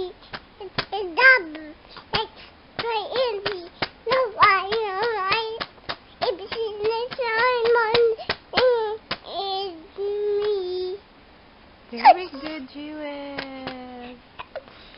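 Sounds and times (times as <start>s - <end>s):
hands slapping: 0.3s - 9.3s, 13.3s - 14.0s
baby babbling: 6.2s - 11.0s.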